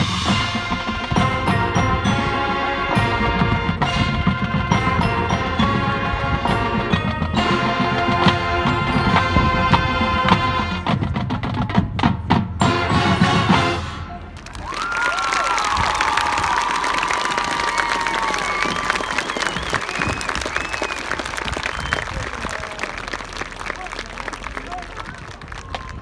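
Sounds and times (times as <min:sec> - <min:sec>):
marching band playing: 0:00.0 - 0:14.5.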